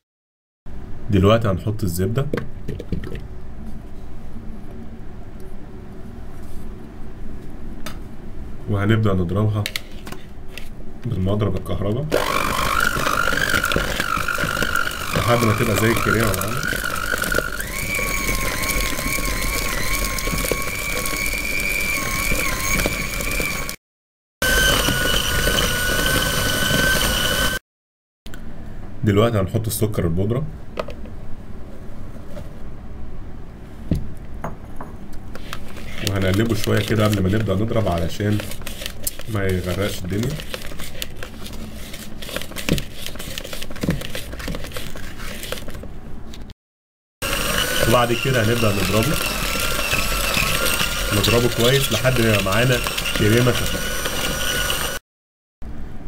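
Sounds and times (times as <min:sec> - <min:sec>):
beaters scraping in plastic bowl: 0:12.1 - 0:23.8, 0:24.4 - 0:27.6, 0:35.4 - 0:45.8, 0:47.2 - 0:55.0
electric hand mixer whining: 0:12.1 - 0:23.8, 0:24.4 - 0:27.6, 0:47.2 - 0:55.0.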